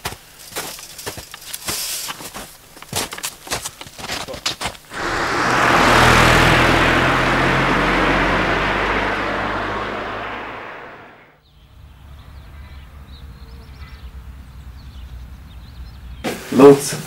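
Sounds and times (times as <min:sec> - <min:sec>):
low hum: 0:04.9 - 0:11.3
vehicle passing by: 0:04.9 - 0:11.3.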